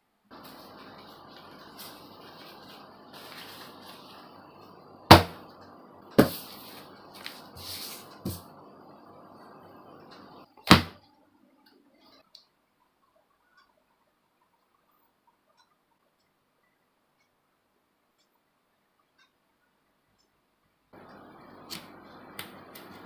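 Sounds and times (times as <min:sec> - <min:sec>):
steady hiss: 0:00.2 - 0:10.8, 0:20.9 - 0:23.0
cloth and paper rustling: 0:00.3 - 0:04.3.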